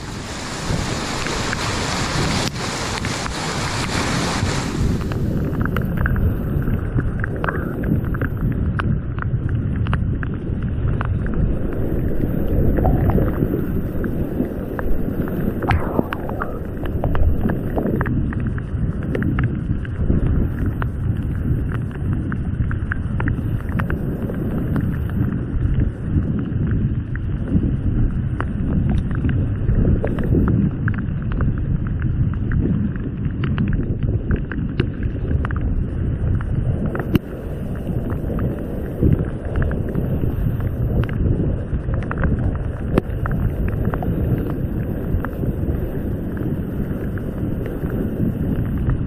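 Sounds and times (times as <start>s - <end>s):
rushing whitewater: 0.0s - 5.1s.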